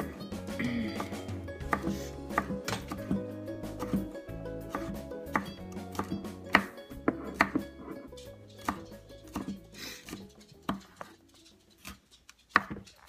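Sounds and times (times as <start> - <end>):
quiet background music: 0.0 - 13.0
knife chopping on wooden board: 1.0 - 3.2, 3.8 - 4.1, 4.7 - 7.9, 8.6 - 11.1, 11.8 - 12.8.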